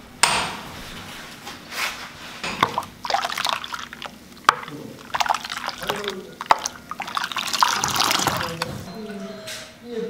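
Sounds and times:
liquid sloshing and trickling: 2.4 - 9.0.

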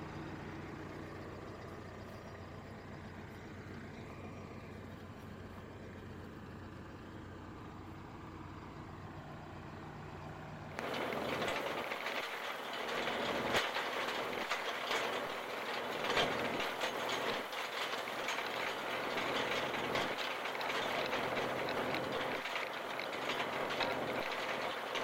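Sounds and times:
harrow discs cutting soil: 0.0 - 25.0
tractor diesel engine running: 0.0 - 25.0
clicks and knocks: 10.8 - 25.0.

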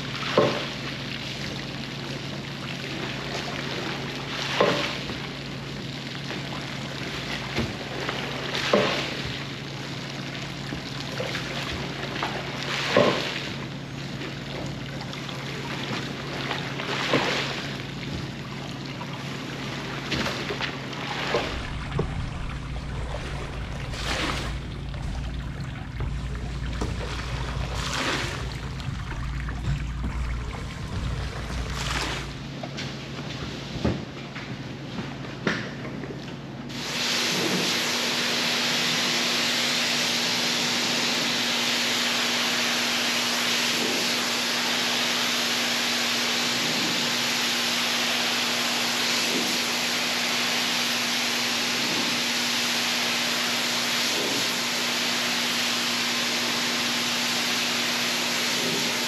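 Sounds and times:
water running: 0.0 - 32.6
machine hum: 13.7 - 32.8
deep rumble: 21.2 - 32.5.

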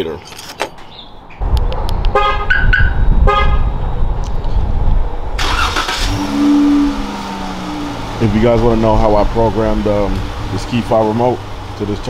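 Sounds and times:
loud low rumble: 1.4 - 5.4, 6.1 - 11.7
steady low hum: 1.4 - 5.4
car horn chirp: 2.1 - 3.8.

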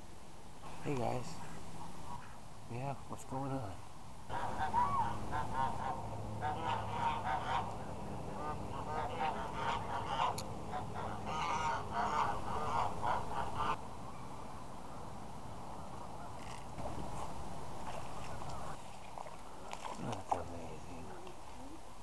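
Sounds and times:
steady low background noise: 0.0 - 22.0
geese honking: 4.3 - 13.8.

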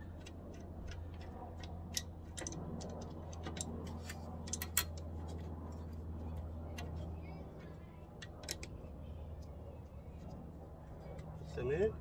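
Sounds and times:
metal clicks and taps: 0.0 - 5.1
steady low hum: 0.0 - 12.0.

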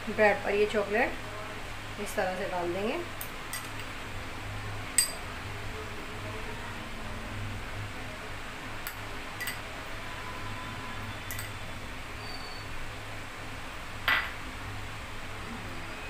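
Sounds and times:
low steady hum: 0.0 - 16.0
spoon clinking against dishes: 5.0 - 5.2, 8.8 - 9.7, 11.2 - 11.6.

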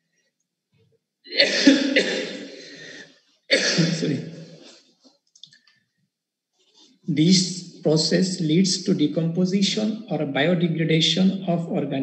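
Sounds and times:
person coughing: 1.3 - 4.8.

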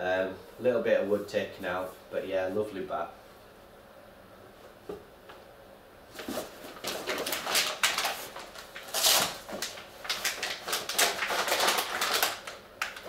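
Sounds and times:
packaging rustling: 6.1 - 13.0.

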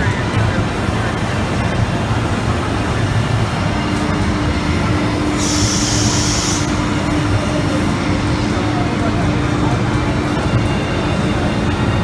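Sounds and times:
exhibition hall din: 0.0 - 12.0
machinery mechanical rumble: 0.0 - 12.0
steady hum: 0.0 - 12.0
hiss: 5.4 - 6.8.

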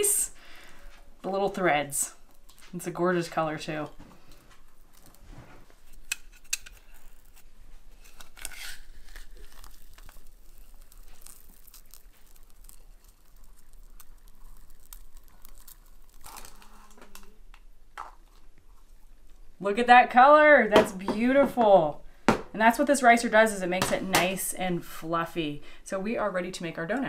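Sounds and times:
potato squishing through ricer: 4.6 - 17.0.

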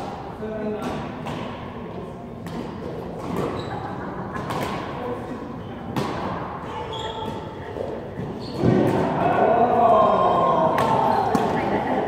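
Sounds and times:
murmur of distant voices: 0.3 - 12.0
racket hitting shuttlecock: 2.4 - 5.1, 5.9 - 6.5, 10.8 - 11.6
shoes squeaking on floor: 3.3 - 4.1, 6.7 - 8.9.

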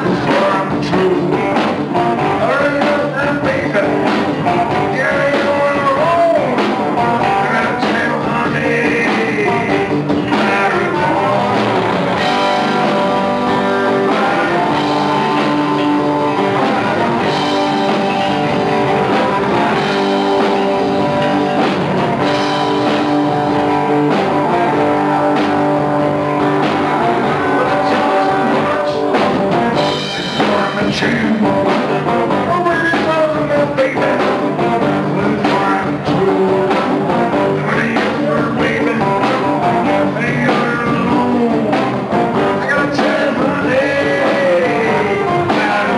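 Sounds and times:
drum kit: 0.0 - 45.9
electric bass: 0.0 - 45.9
electric guitars: 0.0 - 45.9.

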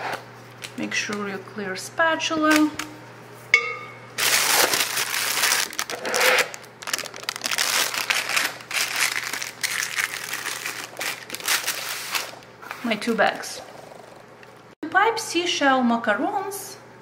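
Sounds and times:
plastic piping bag crinkling: 4.2 - 12.5.

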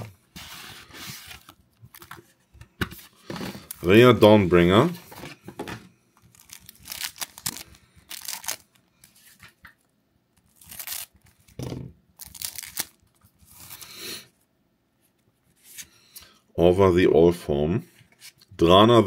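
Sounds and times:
plastic wrapper crinkling and tearing: 6.2 - 11.6, 12.2 - 13.9.

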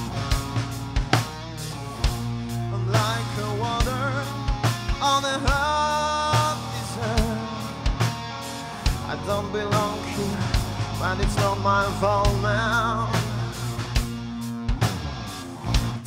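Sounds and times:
drum kit: 0.0 - 16.0
electric guitar: 0.0 - 16.0
man singing with vibrato: 2.6 - 8.1, 8.9 - 13.8.

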